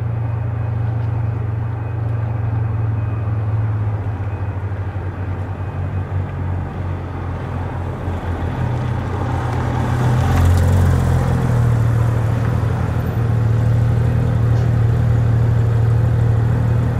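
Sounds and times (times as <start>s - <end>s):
sports car engine passing: 6.5s - 16.9s.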